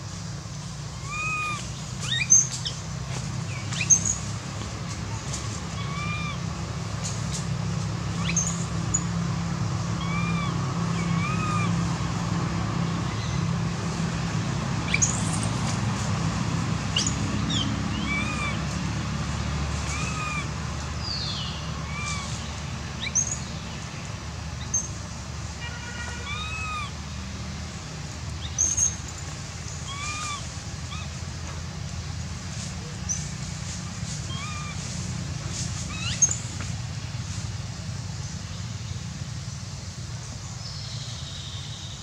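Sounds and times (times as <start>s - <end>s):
birds calling: 0.0s - 27.2s, 28.2s - 42.0s.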